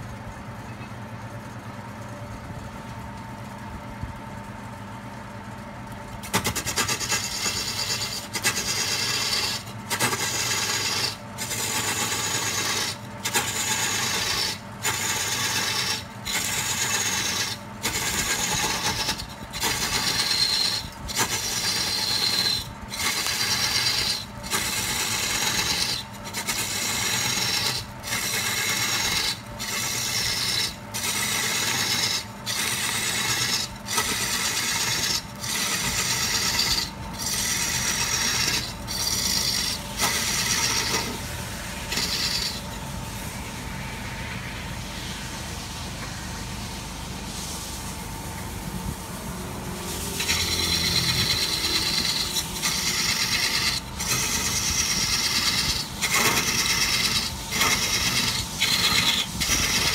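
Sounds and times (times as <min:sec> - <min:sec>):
turning tool rasping wood: 0:06.2 - 0:42.8, 0:50.1 - 0:59.9
wood lathe humming: 0:06.4 - 0:42.8, 0:50.1 - 0:59.9.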